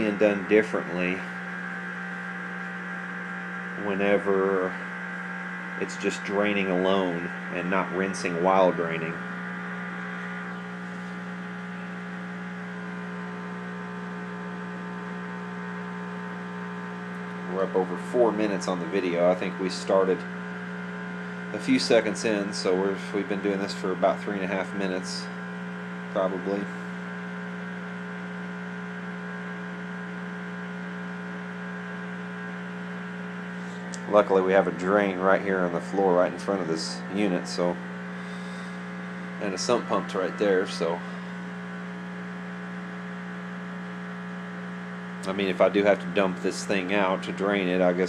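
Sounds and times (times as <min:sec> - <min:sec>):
drain pump humming: 0:00.0 - 0:48.0.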